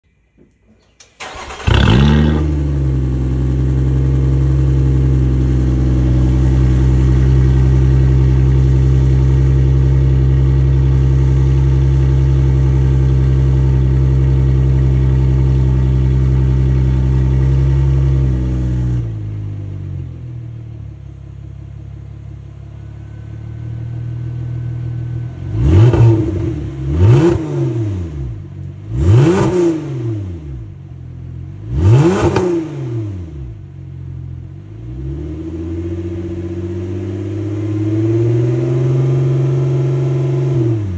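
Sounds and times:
car engine idling and revving: 1.0 - 40.9.

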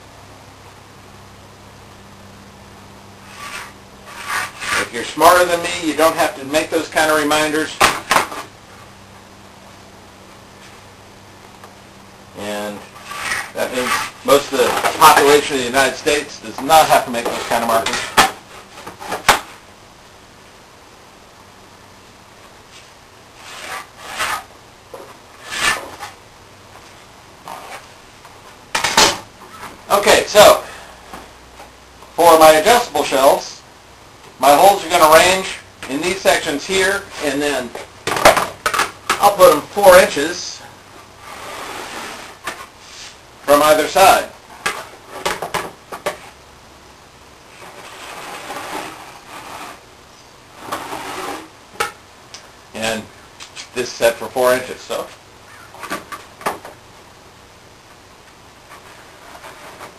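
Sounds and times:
pencil scraping on plywood: 3.3 - 4.9, 13.0 - 14.2, 23.4 - 24.5, 25.4 - 26.1, 47.6 - 49.8, 50.6 - 51.5.

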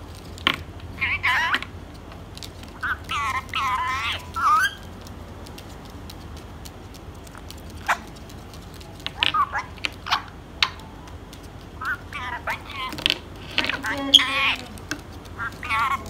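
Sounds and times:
parakeet speech-like calls: 0.9 - 1.7, 2.7 - 4.9, 7.8 - 8.2, 9.0 - 11.1, 11.8 - 16.0.

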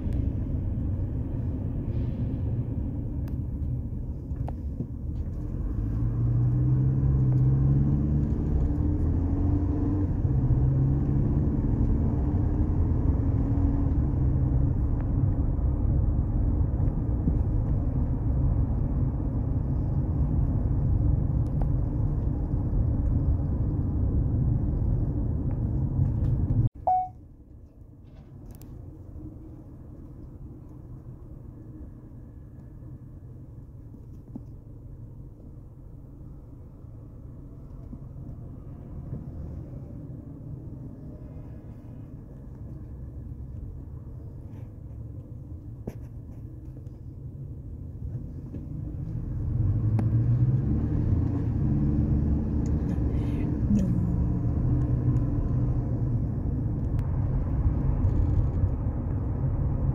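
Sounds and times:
road rumble: 0.0 - 59.9
car engine accelerating: 4.4 - 27.0, 48.2 - 59.9.

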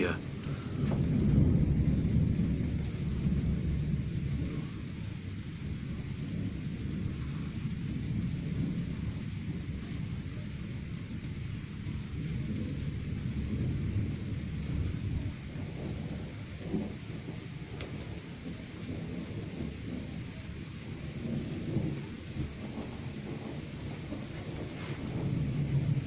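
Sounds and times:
steady hiss: 0.0 - 11.9, 21.2 - 26.0
distant thunder rumbling: 0.0 - 26.0.

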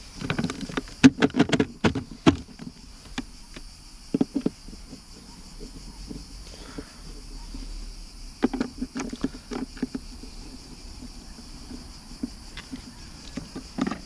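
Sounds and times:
insects shrilling: 0.0 - 14.0
knocks on plastic: 0.4 - 2.7.

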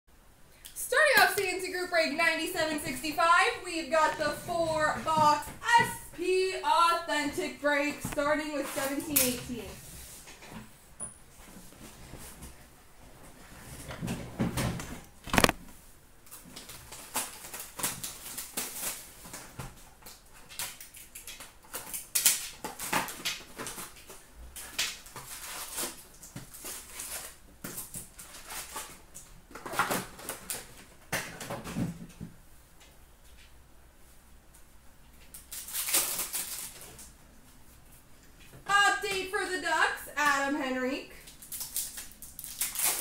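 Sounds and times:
card packs rustling: 15.2 - 15.6
plastic wrap crinkling: 15.2 - 15.7, 16.3 - 30.9, 35.2 - 37.2, 41.2 - 43.0.

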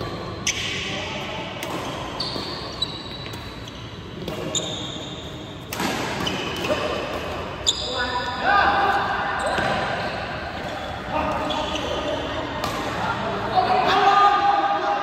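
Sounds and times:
rackets hitting shuttlecock: 0.0 - 4.8, 5.5 - 7.6.

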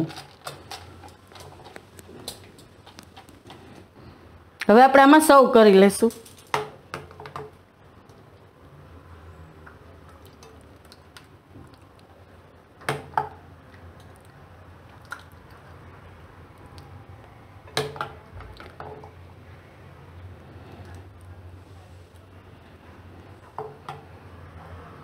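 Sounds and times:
wet squishing plops: 14.0 - 15.6.

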